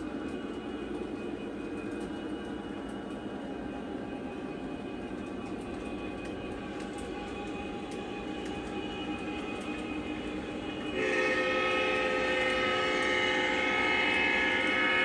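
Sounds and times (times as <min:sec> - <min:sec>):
air horn chord: 0:10.9 - 0:15.0.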